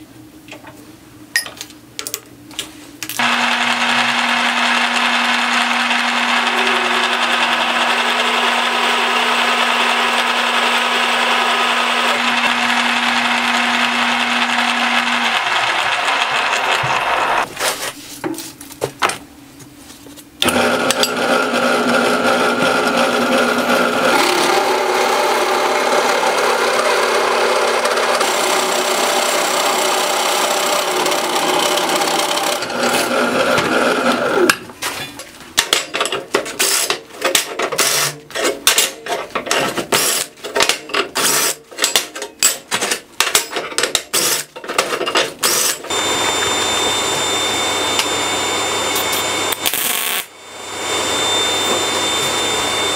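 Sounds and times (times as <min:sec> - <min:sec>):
drill press cutting whine: 0:03.2 - 0:17.5, 0:20.4 - 0:34.5, 0:45.4 - 0:52.9.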